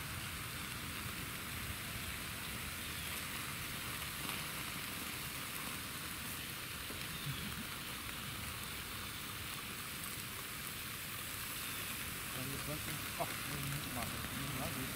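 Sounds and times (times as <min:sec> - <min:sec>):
steady outdoor hiss: 0:00.0 - 0:14.9.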